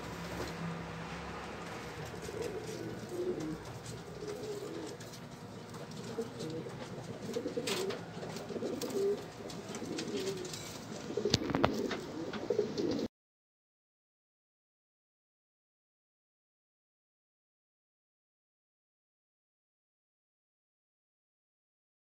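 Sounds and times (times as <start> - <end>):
pigeons cooing: 1.4 - 13.1.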